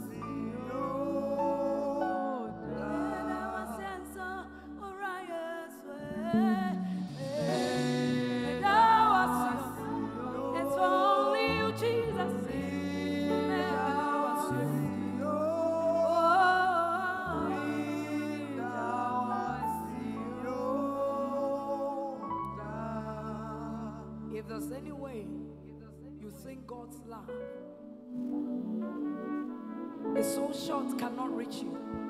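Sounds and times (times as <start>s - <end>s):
person singing gospel song: 0.0s - 25.4s, 28.4s - 32.0s
instrumental accompaniment: 6.2s - 15.8s.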